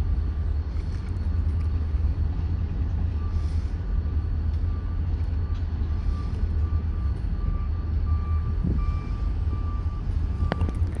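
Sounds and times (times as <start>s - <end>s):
low rumble: 0.0s - 11.0s
reversing alarm beeping: 3.0s - 11.0s.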